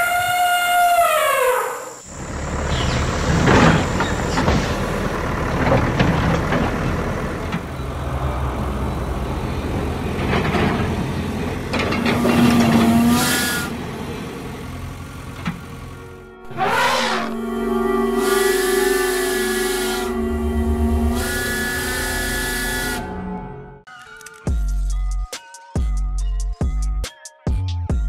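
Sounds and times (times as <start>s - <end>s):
heavy engine rumble: 2.0s - 23.7s
brief falling tone: 16.4s - 23.8s.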